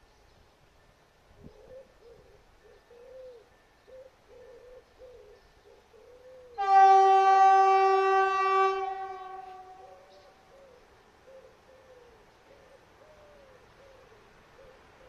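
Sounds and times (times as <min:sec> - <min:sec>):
faint bird calls: 0:00.0 - 0:06.9, 0:08.8 - 0:15.0
train horn: 0:06.6 - 0:10.1.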